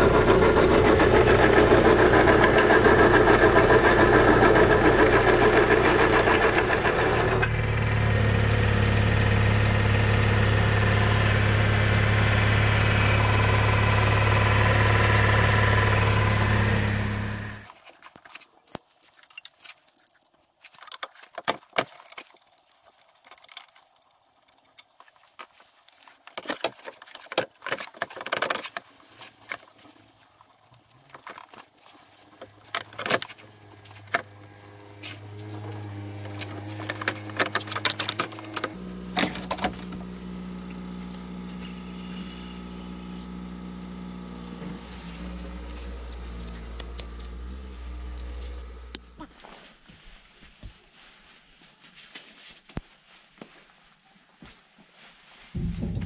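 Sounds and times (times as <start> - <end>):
motor hum: 0.0 - 17.7, 26.3 - 49.3, 55.6 - 56.0.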